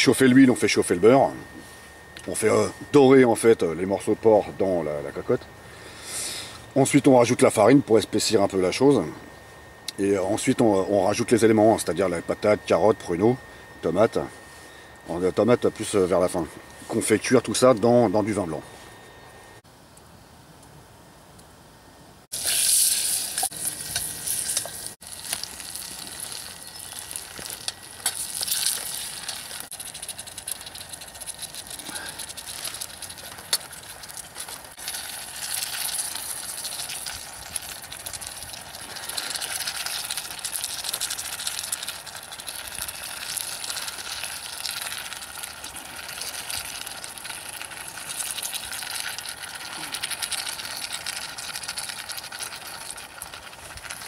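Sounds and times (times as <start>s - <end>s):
meat sizzling in oil: 22.3s - 54.0s.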